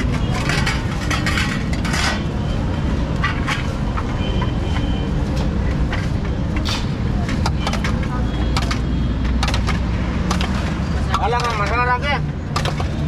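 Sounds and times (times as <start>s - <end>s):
metal utensils clinking: 0.0s - 2.3s
street traffic rumble: 0.0s - 13.0s.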